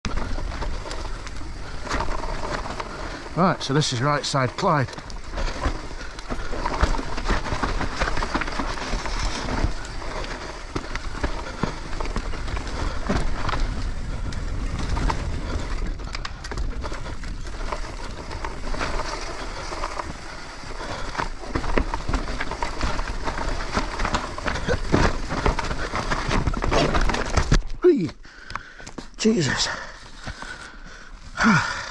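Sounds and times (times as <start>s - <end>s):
bike knocking and rattling: 0.0s - 29.2s
bike tyres on loose dirt: 0.0s - 31.9s
wind rumble on microphone: 11.5s - 18.8s.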